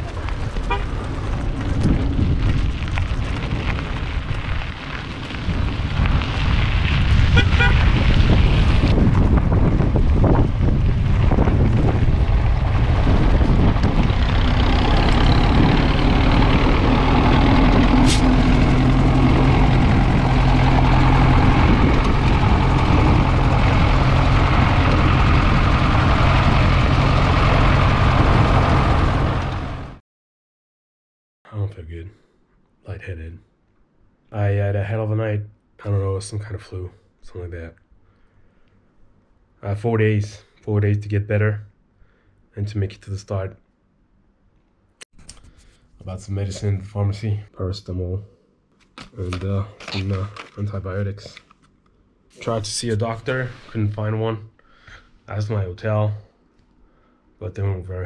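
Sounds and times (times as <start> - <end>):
tyres on gravel road: 0.0 - 30.0, 48.7 - 56.8
truck engine running: 7.1 - 30.0.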